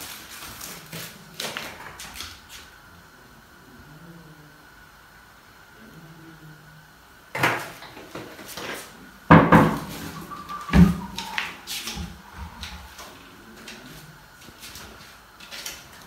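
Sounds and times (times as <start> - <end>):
cabinet doors knocking shut: 9.3 - 10.0, 10.7 - 11.1.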